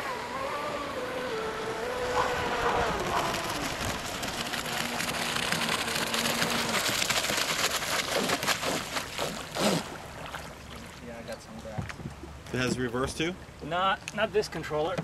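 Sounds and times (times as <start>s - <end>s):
electric motor whine: 0.0s - 7.0s
water splashes: 0.0s - 15.0s.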